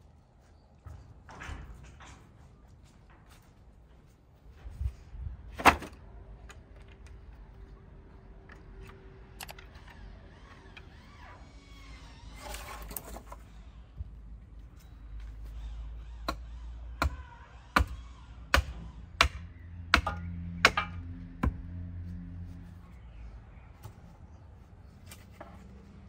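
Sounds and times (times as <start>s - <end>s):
hatchet chopping wood: 17.0s - 21.6s.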